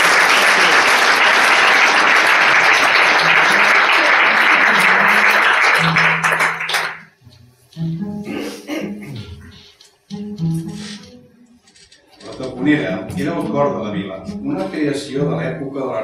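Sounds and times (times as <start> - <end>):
audience applauding: 0.0 - 7.2
cello playing low notes: 12.6 - 15.7.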